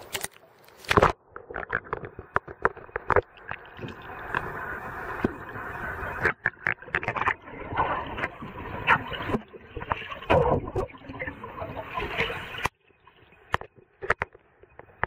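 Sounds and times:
underwater clicks and knocks: 0.0s - 4.6s, 6.1s - 7.4s, 13.5s - 15.0s
muffled underwater noise: 1.5s - 12.7s.

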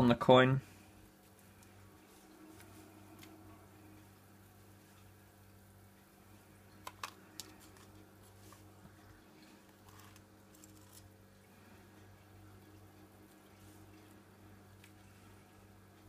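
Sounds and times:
faint steady hum: 0.0s - 16.0s
faint scooping ticks: 6.5s - 16.0s.

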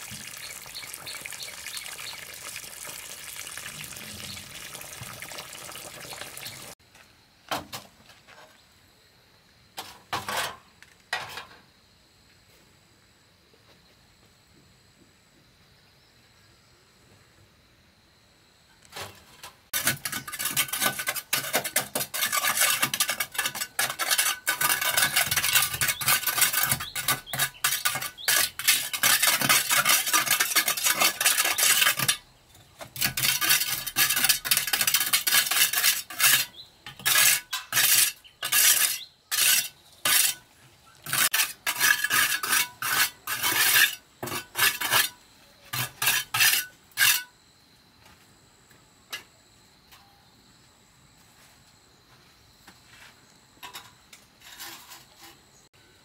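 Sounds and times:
metal tool scraping brick wall: 19.0s - 47.3s, 53.6s - 55.7s.

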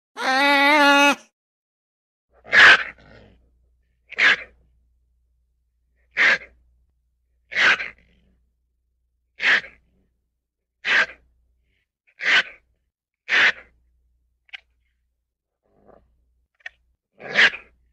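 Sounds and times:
ferret making sharp noises: 0.2s - 1.2s.

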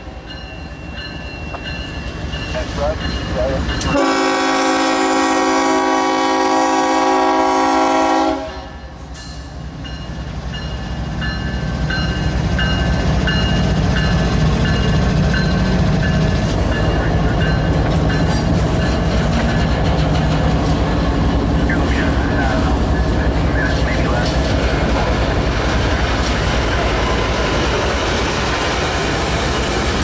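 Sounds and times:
rumble of train cars rolling: 0.0s - 30.0s
locomotive horn: 3.8s - 8.8s.

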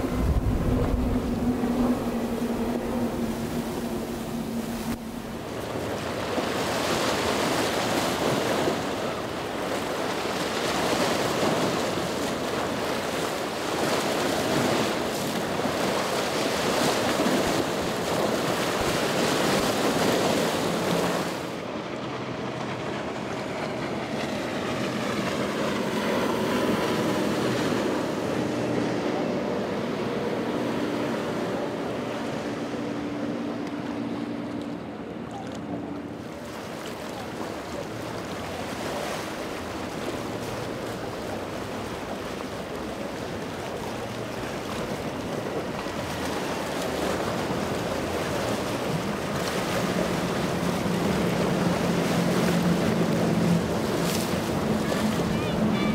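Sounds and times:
wind on microphone: 0.0s - 9.2s
boat engine hum: 0.0s - 55.9s
spray and waves rushing: 0.0s - 55.9s.

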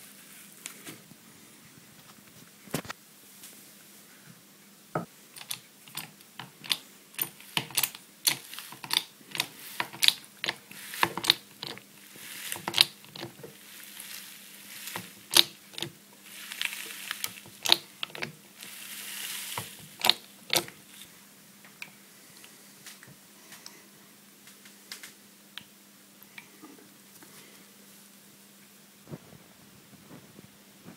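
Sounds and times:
faint steady hum: 0.0s - 30.9s
mechanical clicks and knocks: 5.0s - 11.8s, 12.5s - 13.4s, 14.9s - 16.0s, 17.2s - 18.4s, 19.6s - 20.8s
hiss: 18.6s - 20.0s.

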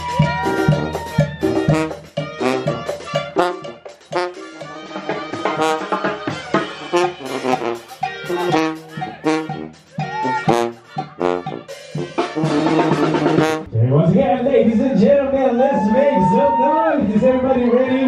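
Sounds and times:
brass band playing: 0.0s - 14.1s.

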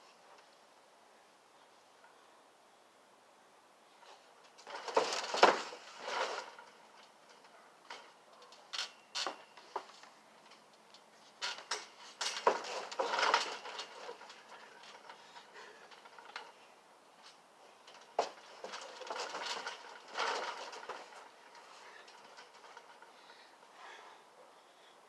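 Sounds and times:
trampoline springs rattling: 3.8s - 25.0s
trampoline mat thudding: 4.6s - 6.8s, 11.4s - 15.1s, 18.0s - 23.0s.

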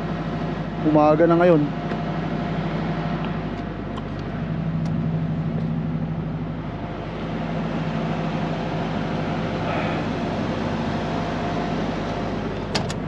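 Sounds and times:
truck diesel engine idling: 0.0s - 13.0s.

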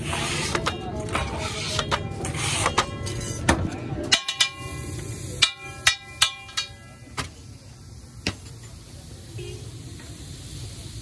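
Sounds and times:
metal spatula clanging cookware: 0.0s - 7.0s.

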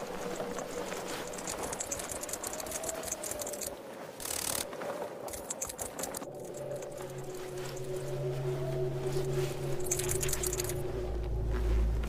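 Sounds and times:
rapid mechanical clicking: 0.1s - 4.7s.

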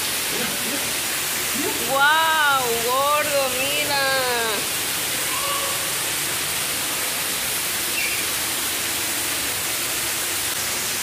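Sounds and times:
aquarium water rushing: 0.0s - 11.0s
person shouting: 1.6s - 2.8s, 3.8s - 5.9s.

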